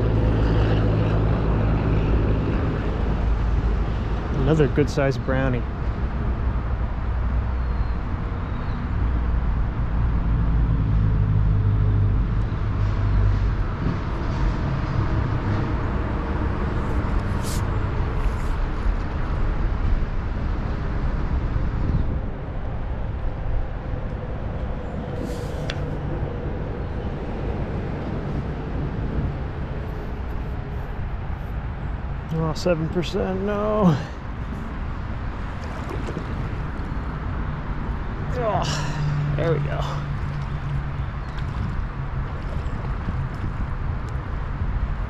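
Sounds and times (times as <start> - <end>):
creek water rushing: 32.4 - 43.1.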